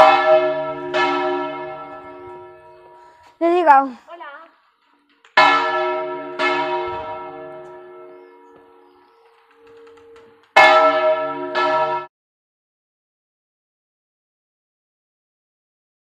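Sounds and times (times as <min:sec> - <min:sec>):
church bells ringing: 0:00.0 - 0:03.9, 0:05.4 - 0:12.1.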